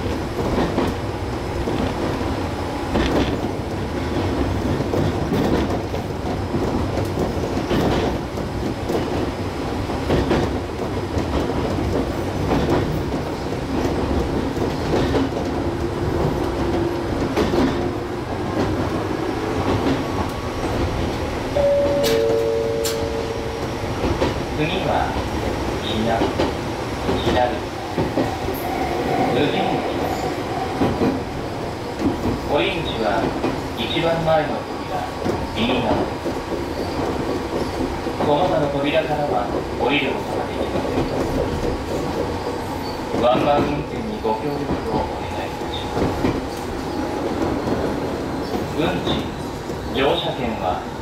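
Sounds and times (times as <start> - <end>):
electric train rumbling: 0.0 - 51.0
wheels clicking over rail joints: 1.6 - 18.9
two-note tone: 21.6 - 23.5.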